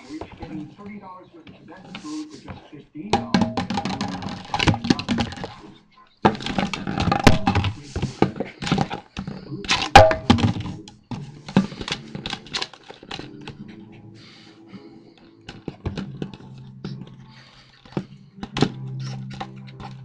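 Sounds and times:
plastic bottle crinkling and cracking: 0:03.2 - 0:05.6, 0:06.3 - 0:13.5.

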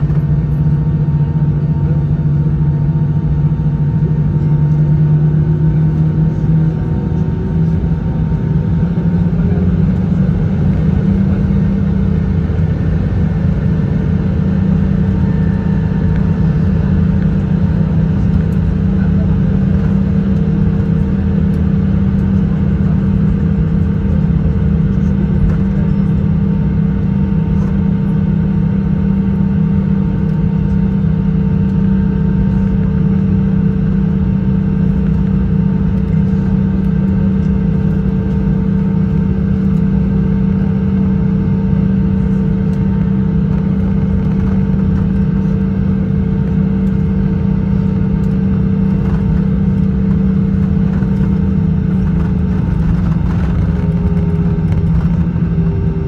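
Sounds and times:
jet engines idling cabin drone: 0:00.0 - 0:56.0.

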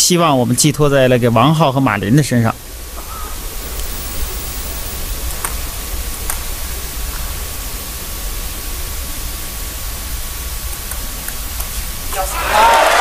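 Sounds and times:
broadcast hiss and hum: 0:00.0 - 0:13.0.

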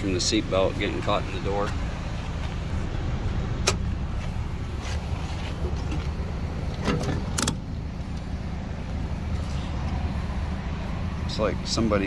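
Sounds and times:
fuel door lever click: 0:06.8 - 0:07.6.

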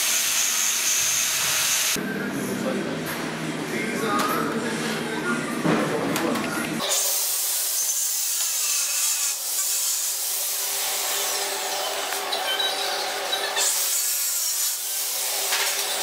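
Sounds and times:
drill bit cutting metal: 0:06.8 - 0:16.0.

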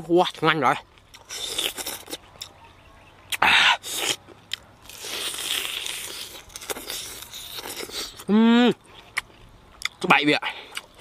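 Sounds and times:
crackly chewing: 0:00.2 - 0:11.0
crunching chicken: 0:01.0 - 0:11.0.

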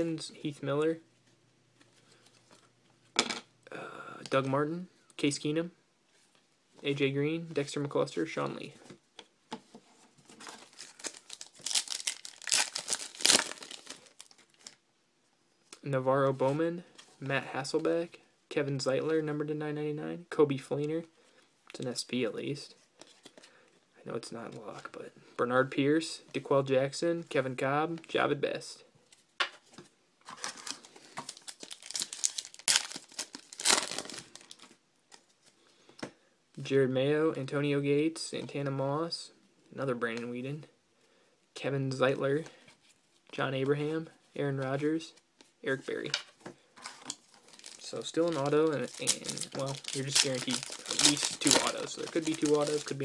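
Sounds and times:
foil pack crinkling and tearing: 0:10.5 - 0:14.8, 0:30.4 - 0:34.7, 0:47.1 - 0:53.0.

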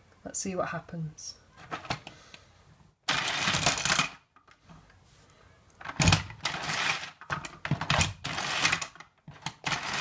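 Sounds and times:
plastic toy rattling down slide: 0:03.1 - 0:04.2, 0:05.8 - 0:10.0
toy windmill rattling whirr: 0:03.1 - 0:04.2, 0:06.0 - 0:10.0.

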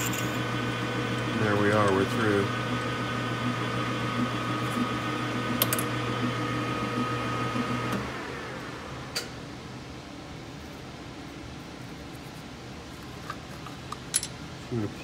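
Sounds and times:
metal lathe running: 0:00.0 - 0:07.9.

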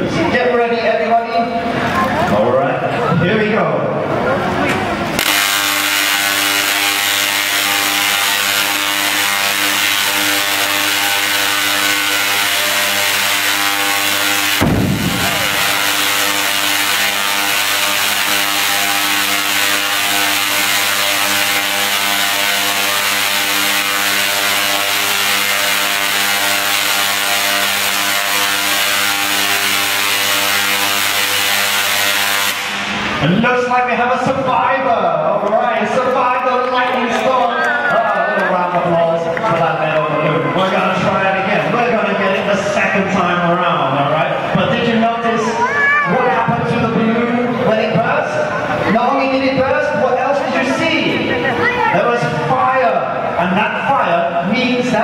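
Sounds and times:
balloon bursting bang: 0:05.2 - 0:33.3
tesla coil sparks crackling: 0:05.2 - 0:34.0.

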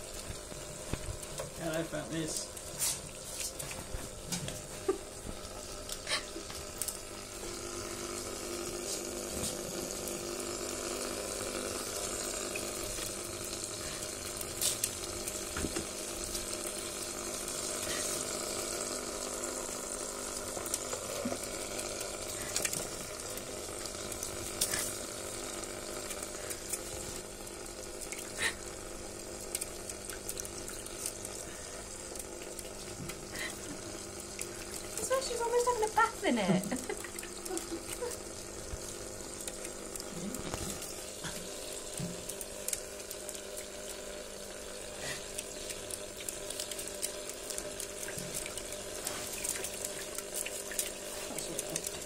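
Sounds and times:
water trickling: 0:00.0 - 0:52.0
animal splashing in water: 0:45.0 - 0:52.0.

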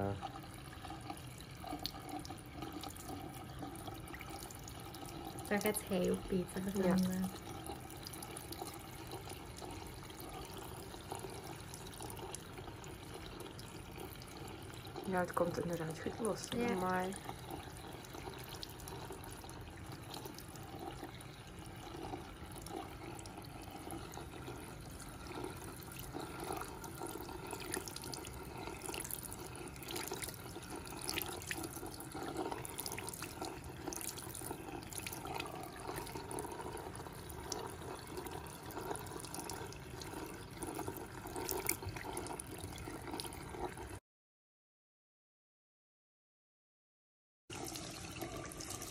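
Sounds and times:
tap water splashing into basin: 0:24.1 - 0:43.5.

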